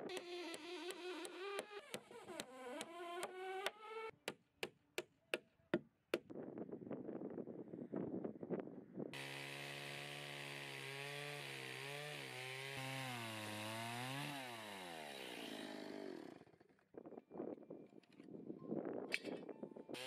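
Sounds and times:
chainsaw cutting through boards: 0.0s - 4.1s, 9.2s - 16.8s.

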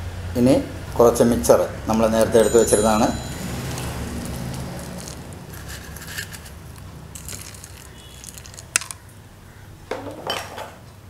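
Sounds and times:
crunchy snack being sprinkled: 3.6s - 9.1s.

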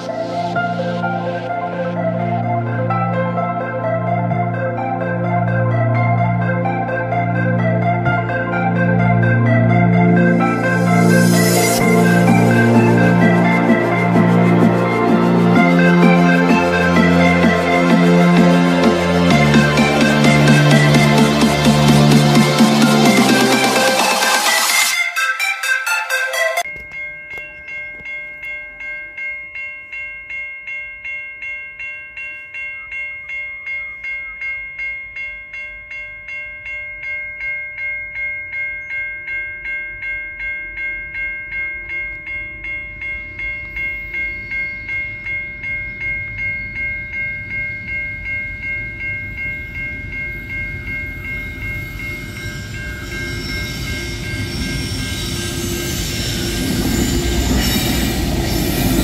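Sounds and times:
freight train rumble: 7.5s - 24.5s, 42.5s - 59.0s
level crossing bell ringing: 7.5s - 59.0s.

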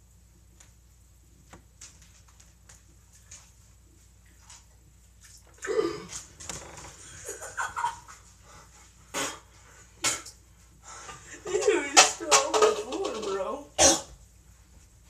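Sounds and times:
person sputtering and coughing: 5.6s - 6.2s, 13.8s - 14.1s.

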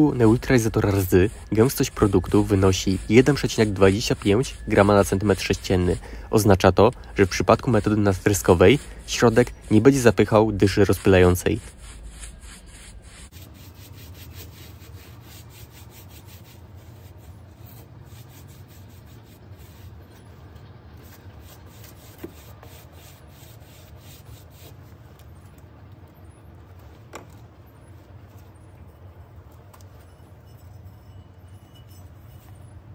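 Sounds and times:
brush scrubbing on metal: 0.0s - 25.3s.

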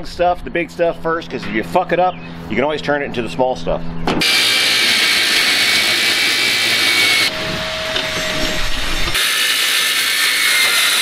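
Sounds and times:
circular saw cutting metal: 4.2s - 11.0s.

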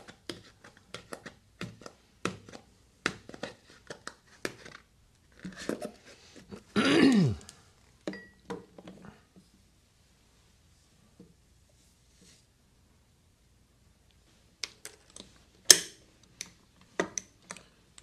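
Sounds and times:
clicks and taps: 14.6s - 18.0s.

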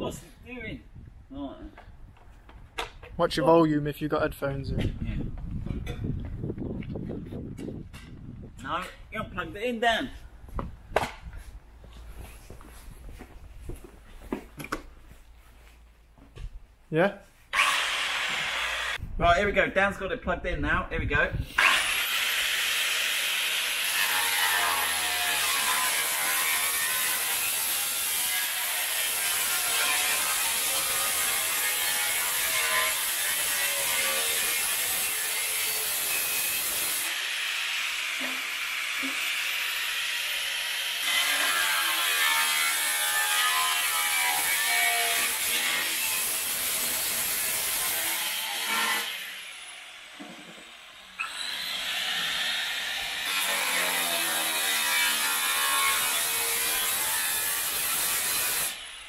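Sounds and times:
angle grinder cutting steel: 17.5s - 19.0s, 21.6s - 59.0s.

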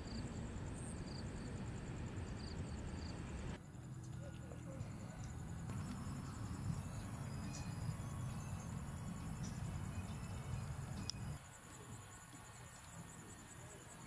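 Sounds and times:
crickets chirping: 0.0s - 14.0s.

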